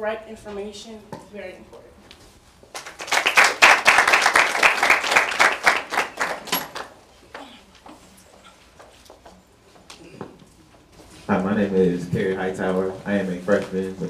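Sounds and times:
audience applauding: 2.8s - 7.0s.

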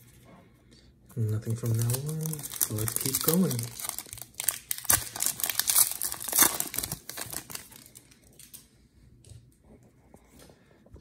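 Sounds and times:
foil wrapper crinkling: 1.2s - 8.7s.

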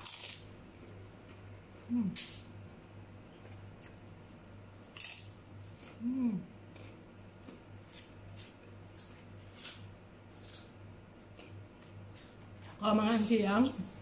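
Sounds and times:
cracker crunching: 0.0s - 1.4s, 4.7s - 6.0s
person humming: 1.8s - 2.3s, 6.0s - 6.5s.

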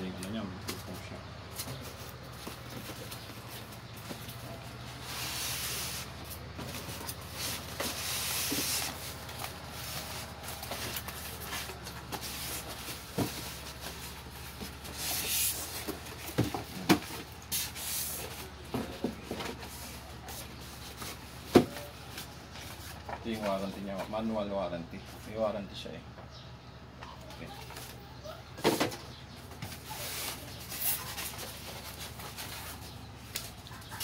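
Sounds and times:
foam scraping against cardboard box: 5.0s - 6.2s, 6.9s - 15.9s.

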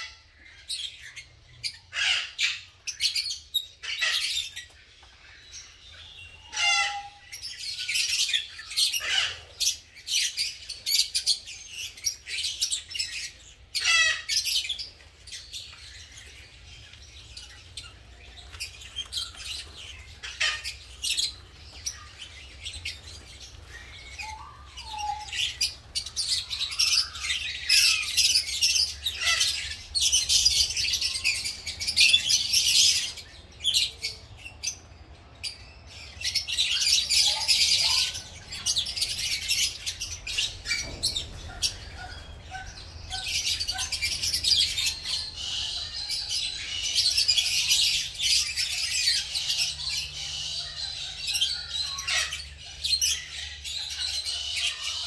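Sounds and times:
lovebirds chattering and chirping: 0.0s - 55.0s.

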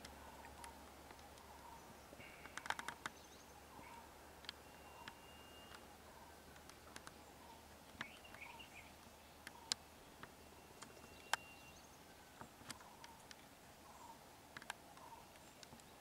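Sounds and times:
sharp clicks: 0.0s - 3.2s
short bird chirps: 4.6s - 5.8s
thin steady whistle: 4.6s - 5.8s.

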